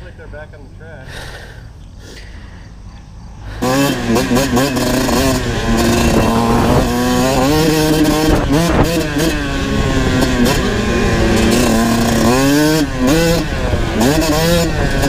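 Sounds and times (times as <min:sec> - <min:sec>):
dirt bike engine revving: 0:03.4 - 0:15.0.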